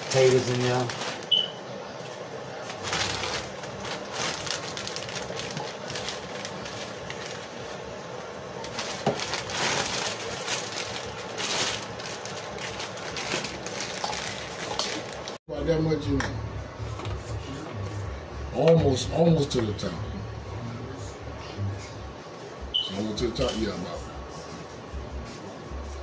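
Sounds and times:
plastic bag crinkling: 0.0s - 1.5s, 2.5s - 15.4s.

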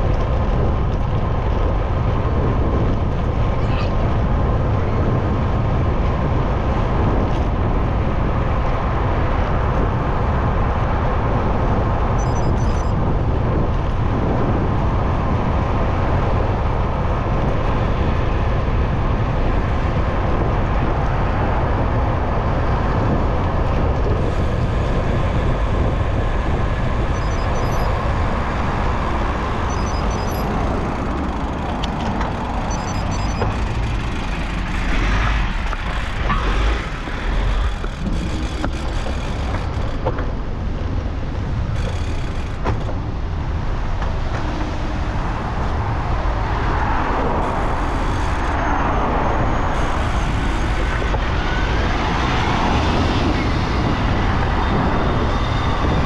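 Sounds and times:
road traffic noise: 0.0s - 56.0s
wind on microphone: 0.0s - 56.0s.

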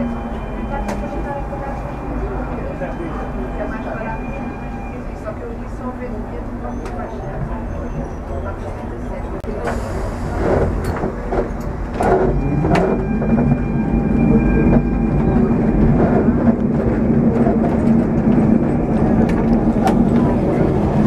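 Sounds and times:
tram humming and rumbling: 0.0s - 21.0s.

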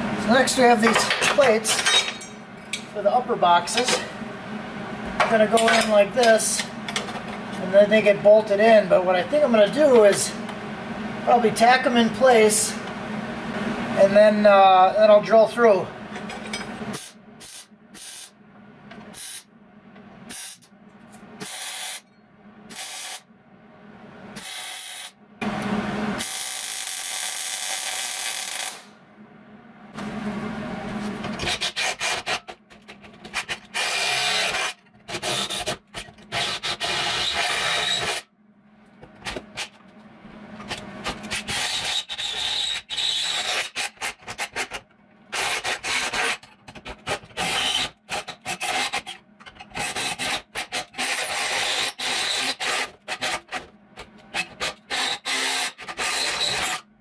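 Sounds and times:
drill grinding through steel: 33.7s - 35.7s, 36.3s - 38.2s, 41.3s - 44.6s, 45.3s - 46.4s, 47.3s - 53.6s, 54.4s - 56.8s.

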